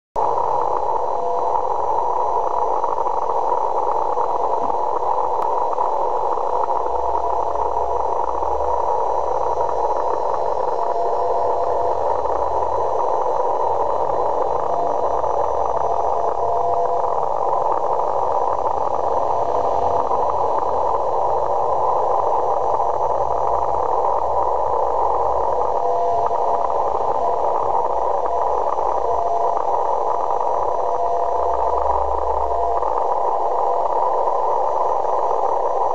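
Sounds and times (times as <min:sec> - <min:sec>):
radio hiss and static: 0:00.2 - 0:35.9.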